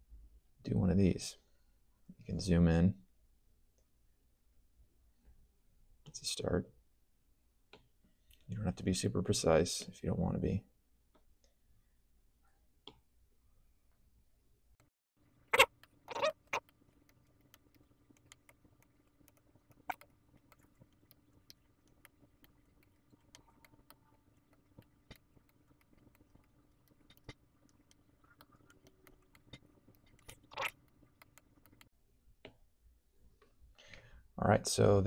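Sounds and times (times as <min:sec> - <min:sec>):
faint steady hum: 0:10.7 - 0:35.0.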